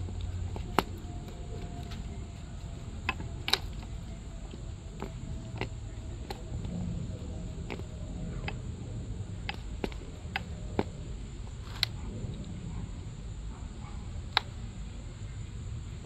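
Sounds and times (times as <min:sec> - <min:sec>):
metal parts clicking and tapping: 0:00.0 - 0:08.6
low outdoor rumble: 0:00.0 - 0:16.0.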